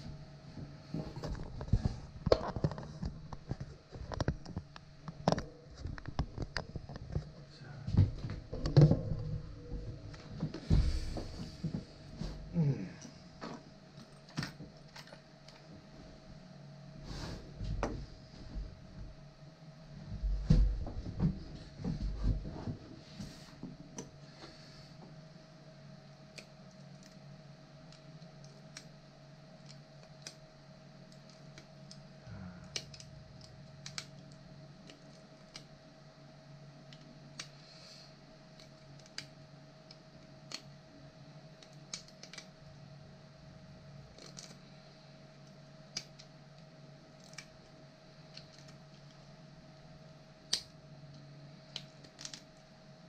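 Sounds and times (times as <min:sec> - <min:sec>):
electrical hum: 0:00.0 - 0:53.0.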